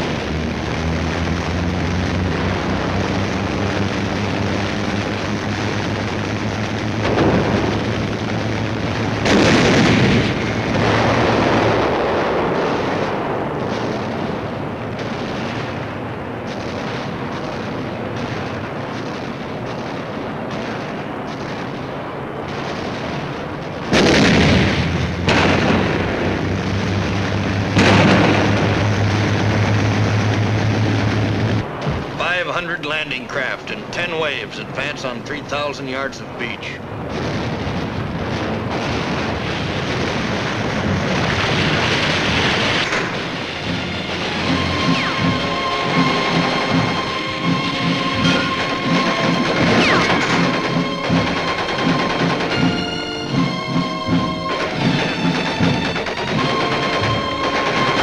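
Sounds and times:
landing craft engines droning: 0.0 - 58.0
loud explosions: 0.0 - 58.0.

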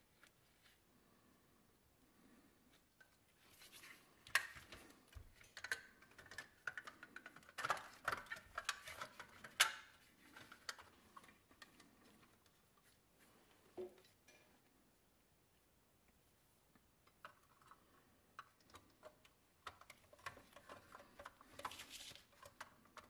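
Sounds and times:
plastic clicks and scrapes: 3.0 - 12.6, 17.1 - 23.0.

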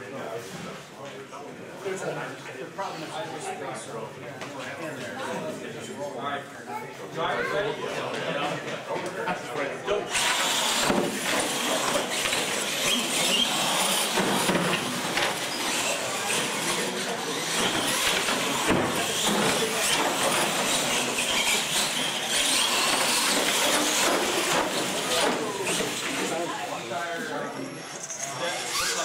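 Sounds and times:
high-pitched whine of toy motors: 10.1 - 29.0.

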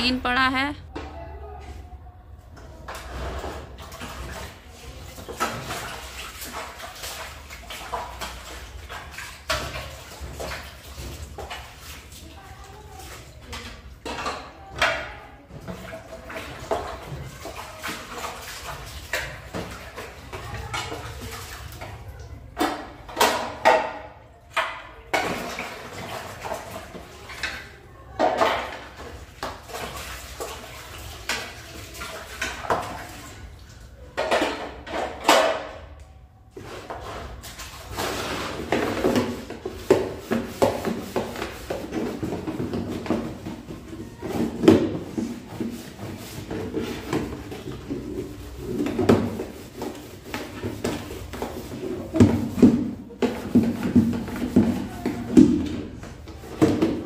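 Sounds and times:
water splashing and sloshing: 0.0 - 57.0
plastic trays knocking and rattling: 38.2 - 57.0.

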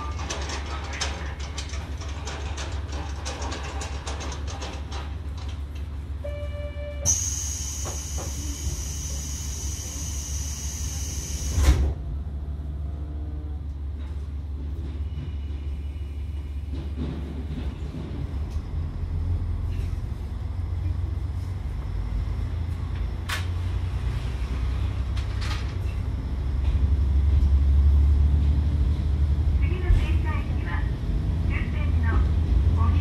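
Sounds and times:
diesel engine rumble: 7.5 - 33.0.

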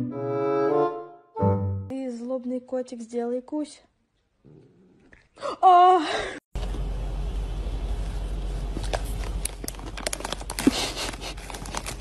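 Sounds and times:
plastic bag crinkling: 8.6 - 12.0.

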